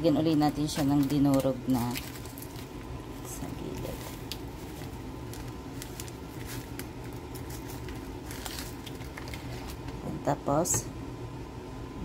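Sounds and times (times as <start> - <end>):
steady low hum: 0.0 - 12.0
crumbs crackling: 0.2 - 10.0
snack packet crinkling: 0.6 - 10.0.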